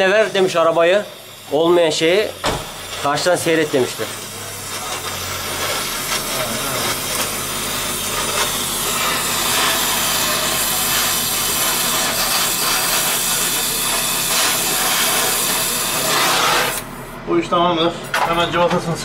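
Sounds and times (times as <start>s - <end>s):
welding torch hissing and crackling: 0.0s - 17.2s.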